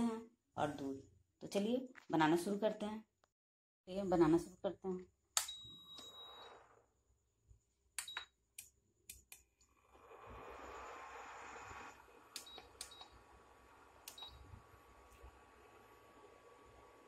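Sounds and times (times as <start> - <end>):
cooktop beeping: 5.4 - 6.8
cooktop hiss and whine: 5.6 - 7.7, 8.5 - 17.0.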